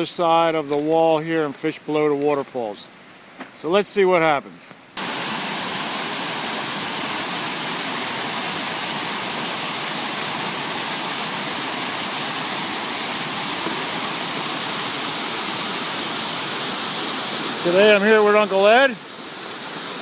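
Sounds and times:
water rushing over spillway: 5.0s - 20.0s.

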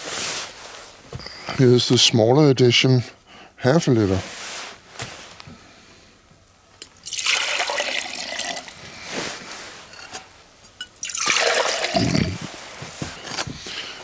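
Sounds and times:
water pouring into glass jug: 7.0s - 8.8s, 10.9s - 12.4s.

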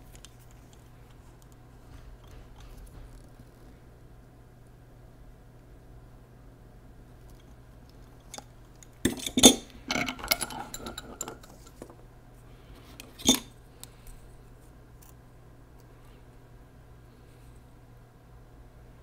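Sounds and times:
metal tools clanking on vise: 9.1s - 11.6s.

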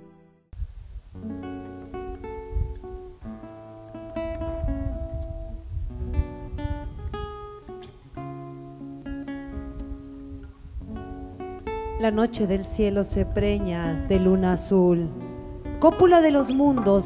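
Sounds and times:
acoustic guitar: 0.0s - 17.0s.

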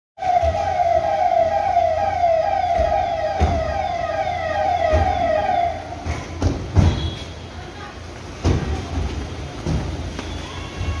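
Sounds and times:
siren rapid falling wail: 0.2s - 6.0s.

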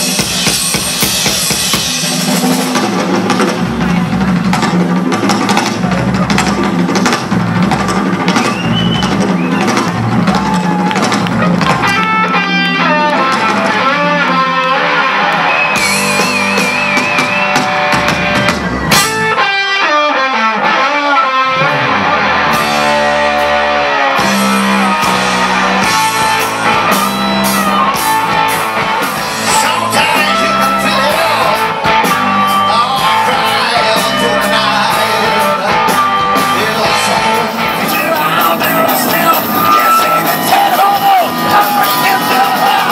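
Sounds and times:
live rock band playing: 0.0s - 42.9s
person singing: 29.2s - 42.9s.

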